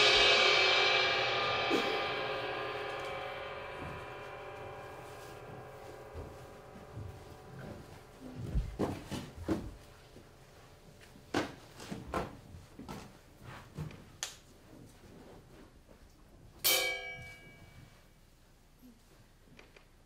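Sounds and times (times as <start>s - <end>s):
metal percussion ringing: 0.0s - 10.4s, 16.6s - 18.0s.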